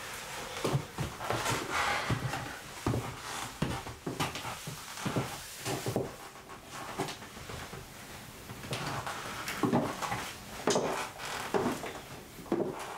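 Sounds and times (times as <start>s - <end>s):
high heels on wooden floor: 9.6s - 12.9s.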